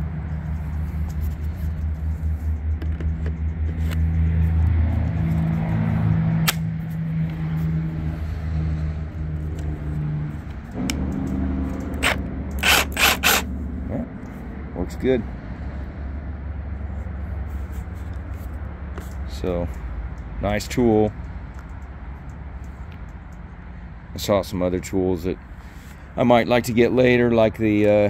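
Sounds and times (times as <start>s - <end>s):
handling clicks and scrapes: 0.0s - 13.5s, 16.9s - 20.3s
low engine hum: 0.0s - 28.0s.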